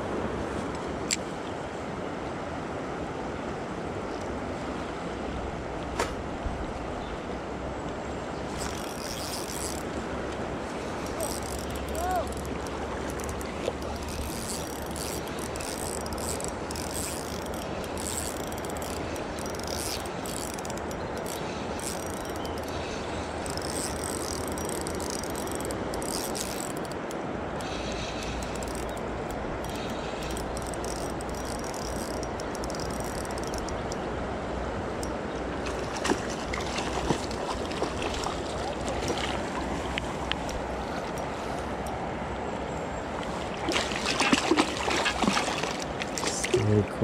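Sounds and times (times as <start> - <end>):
river water rushing: 0.0 - 47.0
fishing reel clicking: 8.6 - 10.0, 11.0 - 22.8, 23.4 - 34.0.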